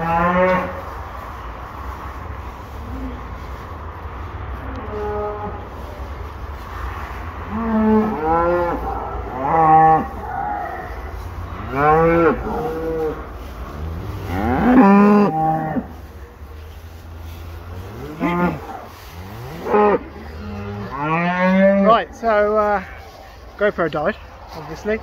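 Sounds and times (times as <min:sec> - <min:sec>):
cows mooing: 0:00.0 - 0:00.8, 0:06.7 - 0:16.2, 0:17.3 - 0:23.4.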